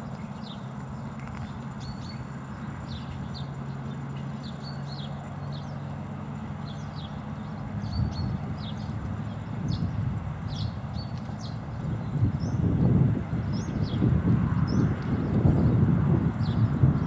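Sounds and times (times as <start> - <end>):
low engine hum: 0.0 - 17.0
small birds chirping: 0.0 - 17.0
wind noise: 7.7 - 17.0.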